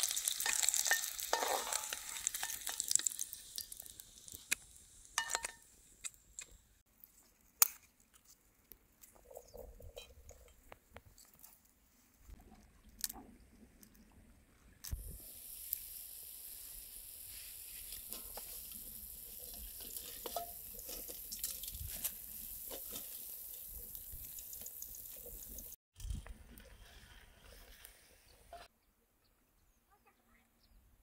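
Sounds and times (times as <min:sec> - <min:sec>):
food sizzling in hot oil: 0:00.0 - 0:06.0, 0:14.9 - 0:25.8.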